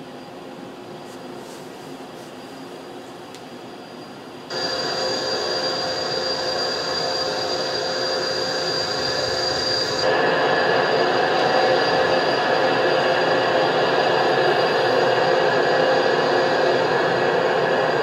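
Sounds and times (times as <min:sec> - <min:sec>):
jet engines whining: 0:04.4 - 0:18.0.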